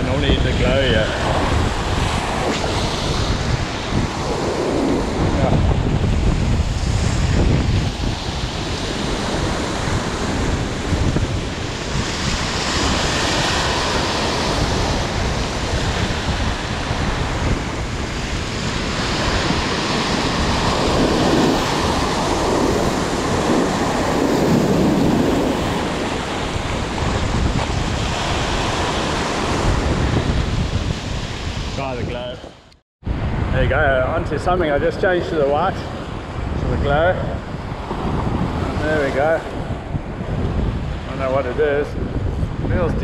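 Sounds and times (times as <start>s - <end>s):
surf breaking over rocks: 0.0s - 32.4s
wind buffeting microphone: 0.0s - 43.0s.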